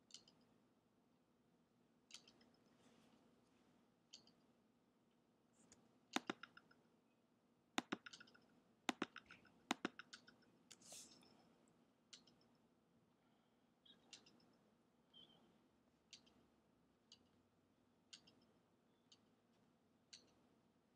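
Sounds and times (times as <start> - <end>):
computer mouse clicking: 0.1 - 0.4, 2.1 - 2.7, 4.1 - 4.4, 5.6 - 6.8, 7.8 - 11.3, 12.1 - 12.5, 14.0 - 14.6, 16.1 - 16.4, 18.1 - 18.5.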